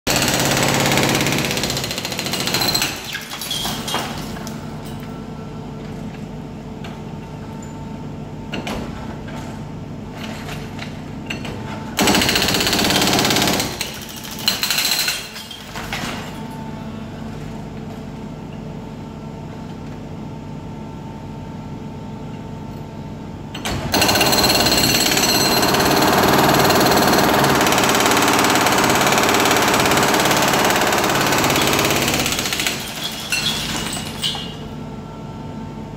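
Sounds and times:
hydraulic breaker hammering concrete: 0:00.1 - 0:03.2, 0:12.0 - 0:15.4, 0:23.6 - 0:34.5.

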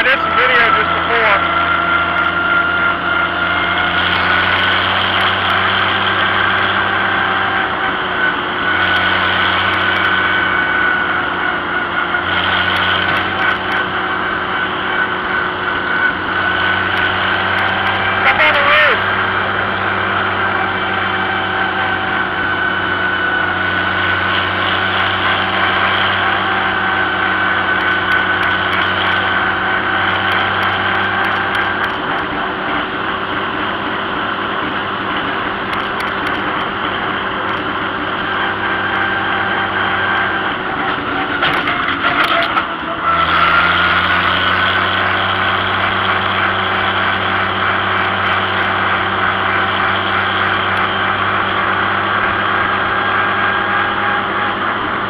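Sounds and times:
road and wind noise: 0:00.0 - 0:55.0
tractor engine running: 0:00.0 - 0:55.0
clicks: 0:35.7 - 0:36.7.

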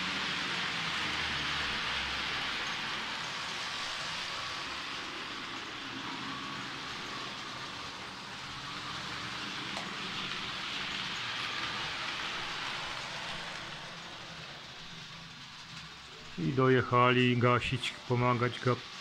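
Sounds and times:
model train wheels on rails: 0:00.0 - 0:19.0.

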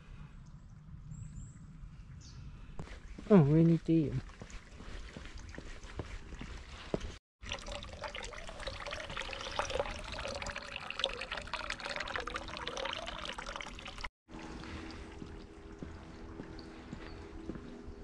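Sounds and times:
water pouring into stone basin: 0:07.4 - 0:15.9.

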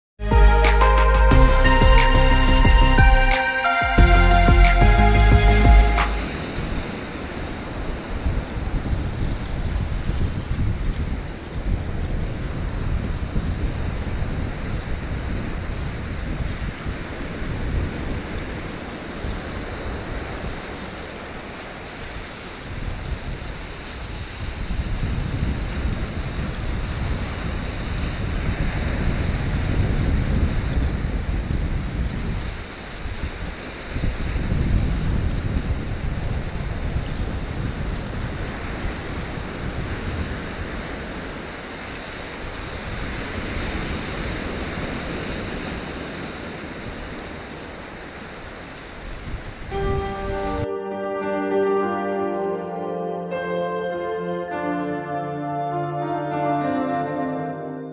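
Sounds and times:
sea waves washing in: 0:00.5 - 0:29.7
wind rumbling on microphone: 0:06.2 - 0:50.6.

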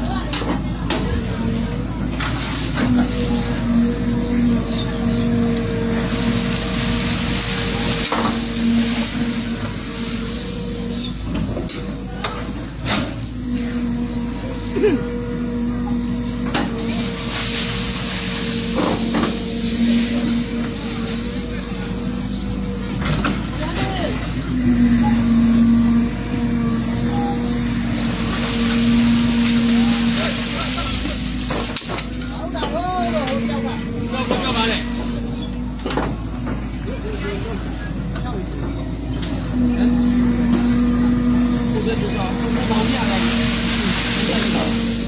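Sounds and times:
engine humming: 0:00.0 - 0:45.0.

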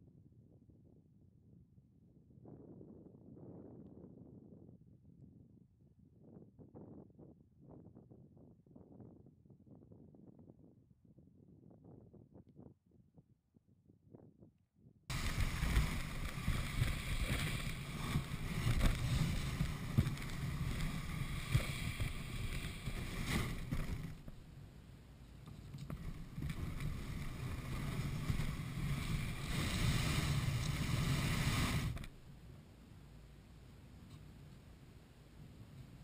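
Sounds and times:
kayak scraping over snow and gravel: 0:15.1 - 0:24.5, 0:25.2 - 0:32.4.

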